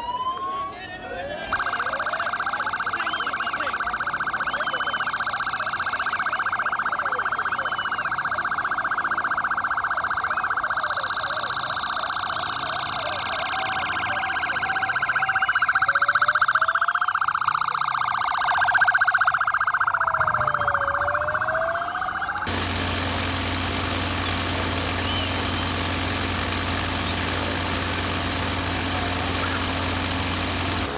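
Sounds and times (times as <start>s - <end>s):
police siren warbling: 0.0s - 30.9s
motorcycle engine hum: 22.5s - 30.9s.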